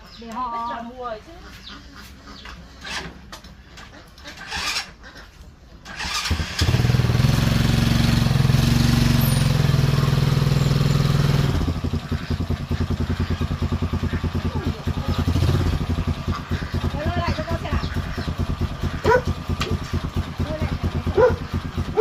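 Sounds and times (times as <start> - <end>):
motorbike engine running: 5.9 - 22.0.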